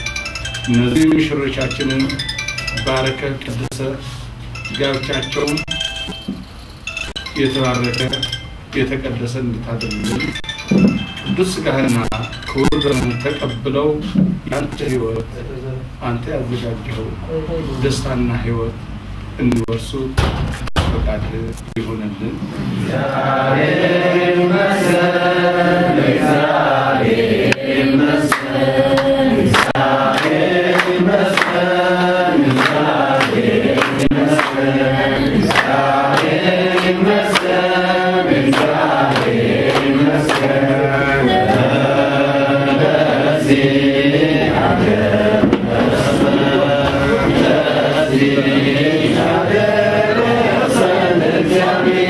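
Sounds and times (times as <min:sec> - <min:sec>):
voices singing a liturgical chant: 0:22.8 - 0:52.0
sharp claps or knocks: 0:28.3 - 0:31.6, 0:32.4 - 0:34.7, 0:35.5 - 0:37.6, 0:38.4 - 0:40.6.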